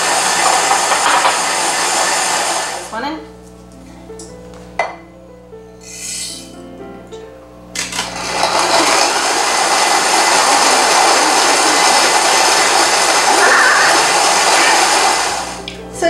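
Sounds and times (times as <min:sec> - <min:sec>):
grain mill whirring grind: 0:00.0 - 0:03.0, 0:07.7 - 0:15.7
mixer clicks: 0:07.8 - 0:15.8.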